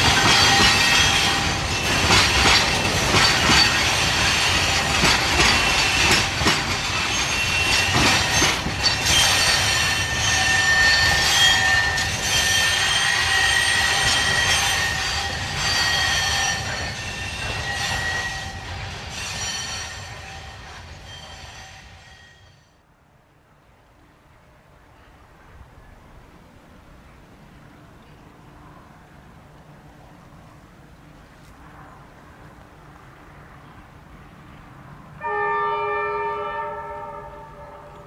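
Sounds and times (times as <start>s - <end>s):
wheels clicking over rail joints: 0.0s - 21.2s
train wheels squealing: 0.0s - 22.8s.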